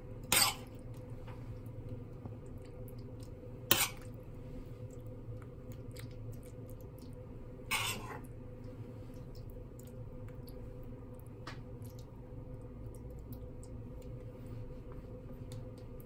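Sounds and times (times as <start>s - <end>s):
steady low hum: 0.0s - 16.0s
metal spoon scraping frying pan: 0.3s - 0.7s, 3.7s - 4.0s, 7.7s - 8.2s
soft squishes: 0.3s - 16.0s.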